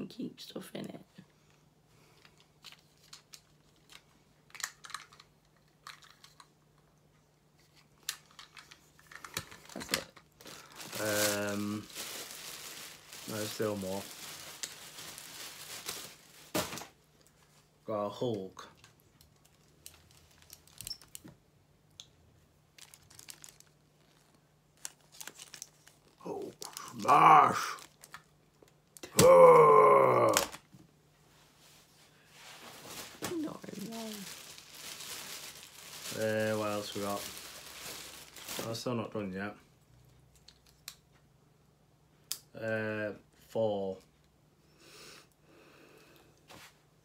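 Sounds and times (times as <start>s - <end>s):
plastic figure clicking and rustling: 2.4s - 6.9s, 7.7s - 10.3s.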